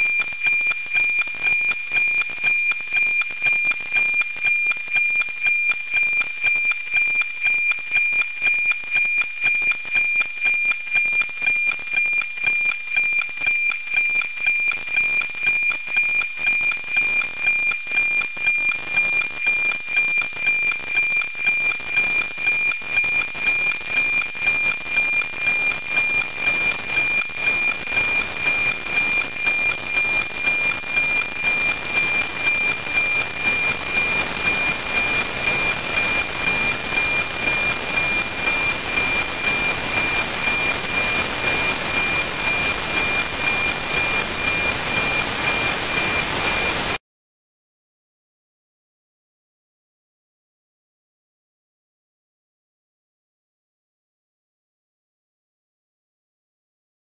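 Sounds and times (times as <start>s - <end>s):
steady tone with tick-tock beat: 0.0s - 47.0s
static hiss: 23.3s - 47.0s.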